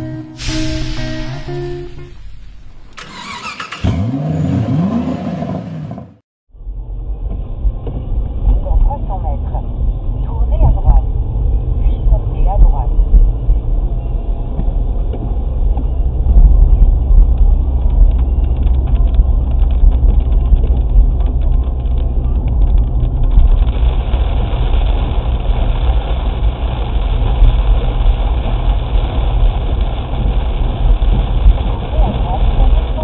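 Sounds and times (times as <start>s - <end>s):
heavy rain hiss: 0.3s - 3.6s
engine and tyre rumble: 1.8s - 33.0s
raindrops ticking on windscreen: 7.6s - 33.0s.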